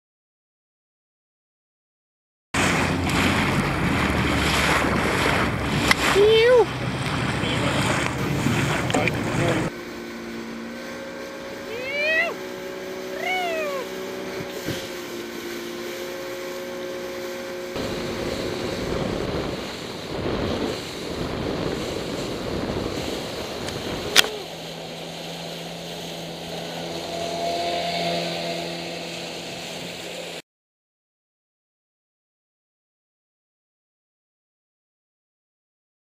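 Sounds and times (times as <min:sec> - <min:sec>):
wind on microphone: 0:02.6 - 0:09.8, 0:10.6 - 0:30.4
outboard motors running: 0:02.6 - 0:30.4
rushing boat wake: 0:02.6 - 0:30.4.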